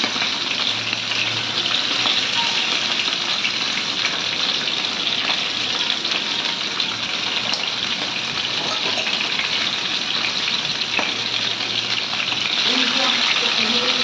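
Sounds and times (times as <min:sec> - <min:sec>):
fish sizzling in oil: 0:00.0 - 0:14.0.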